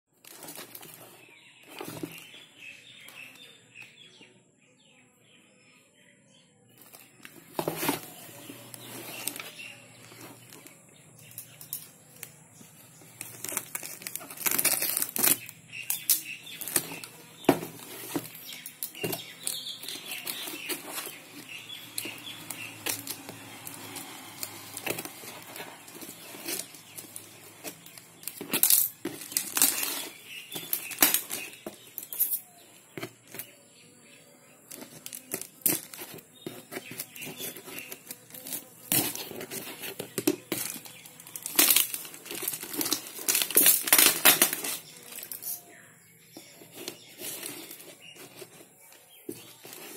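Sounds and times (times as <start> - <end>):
plastic crinkling: 0.2 - 3.5, 6.8 - 32.4, 34.7 - 45.7, 46.4 - 49.9
cardboard rustling: 0.2 - 3.8, 6.8 - 33.5, 34.7 - 49.9
scissors cutting packing tape: 13.2 - 32.4, 34.7 - 45.6.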